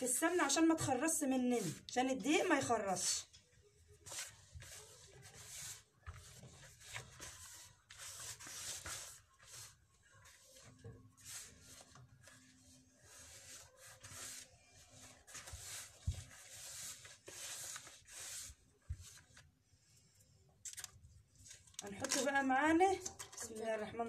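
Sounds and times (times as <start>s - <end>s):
hands rustling in flour: 4.0s - 19.6s.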